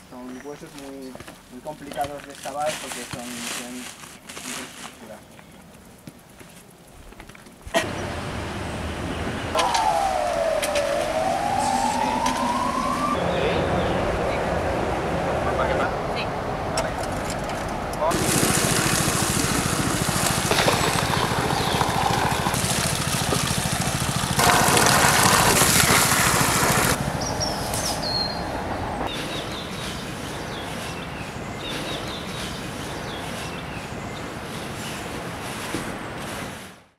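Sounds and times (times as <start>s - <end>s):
water pump engine humming: 7.8s - 15.3s, 18.0s - 27.3s
birds chirping: 7.8s - 16.9s, 18.0s - 35.1s
water spraying into tubs: 18.0s - 27.0s.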